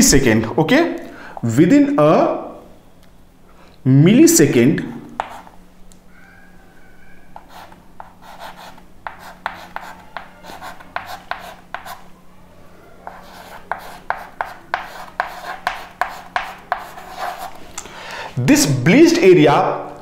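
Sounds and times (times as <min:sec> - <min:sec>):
chalk writing on chalkboard: 0:05.1 - 0:05.6, 0:07.4 - 0:12.1, 0:13.0 - 0:17.7.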